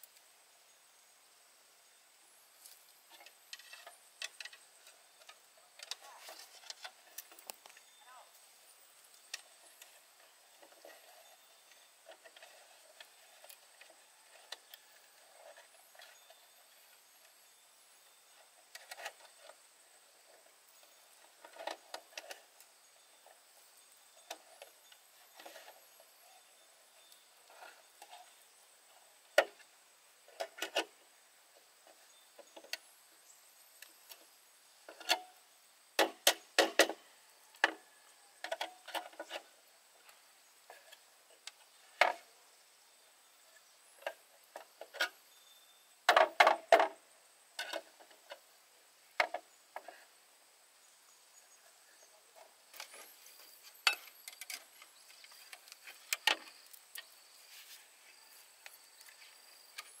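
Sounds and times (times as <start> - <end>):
bamboo wooden knocks and clacks: 36.0 - 37.0, 46.1 - 47.0.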